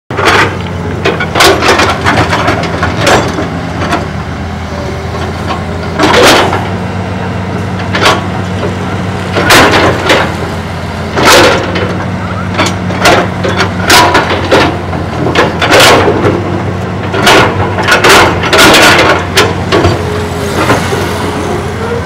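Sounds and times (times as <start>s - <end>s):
excavator diesel engine running: 0.1s - 22.0s
bucket scraping and clanking: 7.8s - 22.0s.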